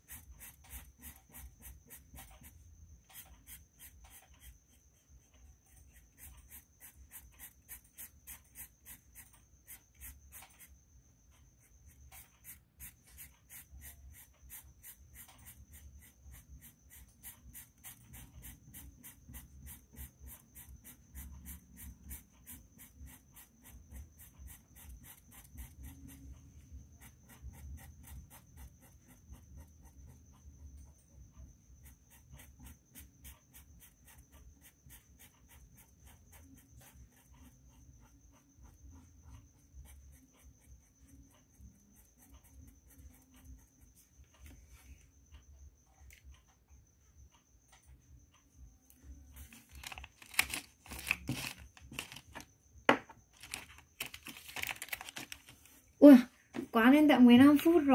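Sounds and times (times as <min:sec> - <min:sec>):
marker scratching on paper: 0:00.0 - 0:10.8, 0:11.5 - 0:30.3, 0:31.8 - 0:44.9.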